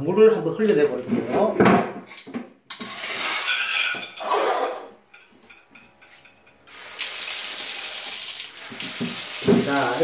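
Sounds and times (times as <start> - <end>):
water pouring from drain pipe: 6.7 - 10.0.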